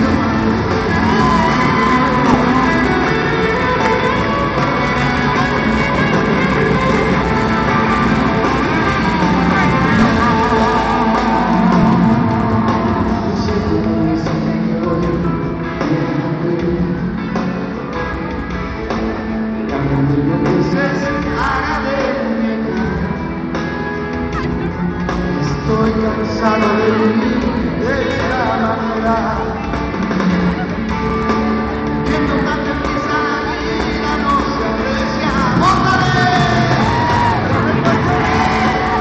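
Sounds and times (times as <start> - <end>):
pop-rock band playing live: 0.0 - 39.0
man singing: 7.8 - 17.9, 19.5 - 23.5, 24.8 - 30.7, 32.0 - 39.0.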